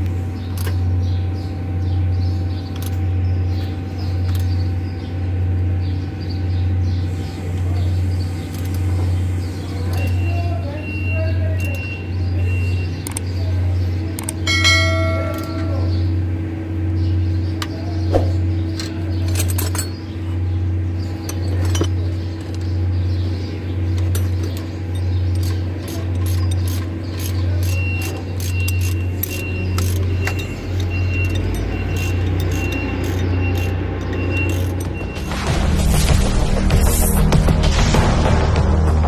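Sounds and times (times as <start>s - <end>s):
low pulsing hum: 0.0s - 39.0s
metal tools clinking: 14.2s - 16.0s, 18.4s - 20.2s, 21.0s - 22.8s, 23.8s - 35.3s.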